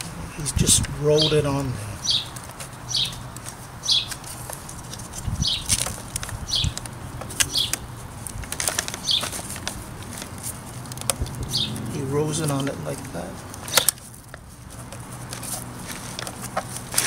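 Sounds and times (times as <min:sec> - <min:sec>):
hands rustling with rubber belt: 0:00.8 - 0:17.0
bird chirping: 0:01.1 - 0:04.4, 0:05.3 - 0:08.0, 0:09.0 - 0:09.4, 0:11.2 - 0:12.8.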